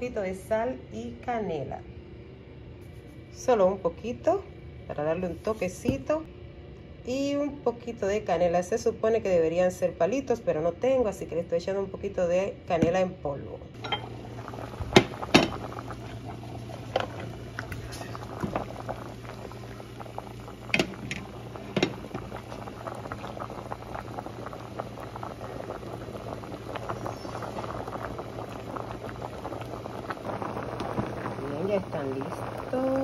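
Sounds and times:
water boiling and bubbling: 13.7s - 33.0s.

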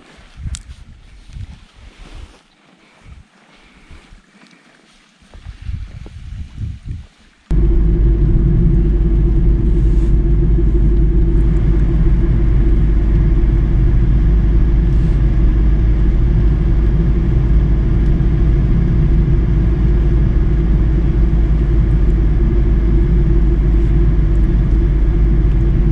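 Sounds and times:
car driving low rumble: 7.5s - 25.9s.

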